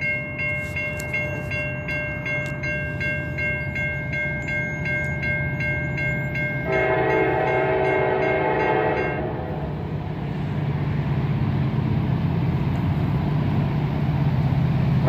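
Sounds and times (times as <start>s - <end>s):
train bell dinging: 0.0s - 9.6s
locomotive rumble: 0.0s - 15.0s
train air horn: 6.7s - 9.8s.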